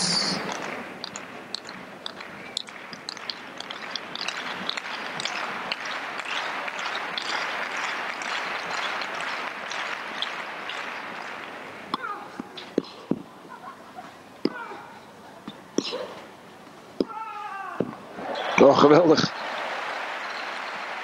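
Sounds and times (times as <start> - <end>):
crowd applauding: 0.5 - 11.8, 18.2 - 21.0.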